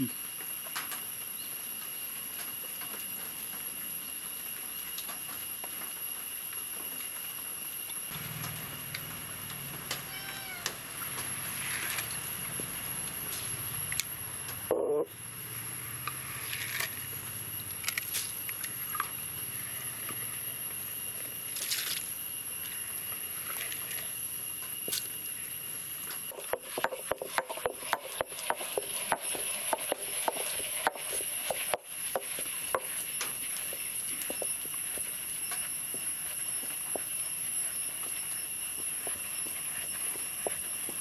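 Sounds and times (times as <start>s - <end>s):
grinding stone crushing grains: 8.1s - 13.6s, 15.8s - 25.2s, 26.1s - 41.0s.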